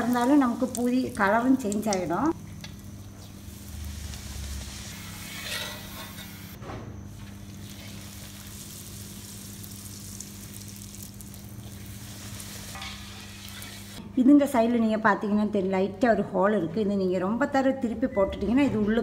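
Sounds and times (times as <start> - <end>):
hot oil sizzling: 0.0 - 6.6, 7.2 - 14.0.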